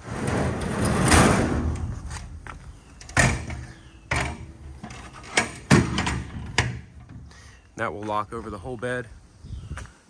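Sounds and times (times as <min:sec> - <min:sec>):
panels knocking into place: 0:00.0 - 0:07.3
sliding rattle of panels: 0:00.0 - 0:07.4.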